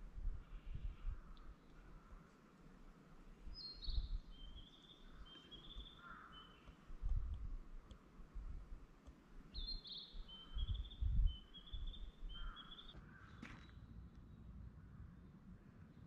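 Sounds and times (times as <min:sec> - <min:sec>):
songbird trilling: 0:03.6 - 0:06.8, 0:09.5 - 0:13.2.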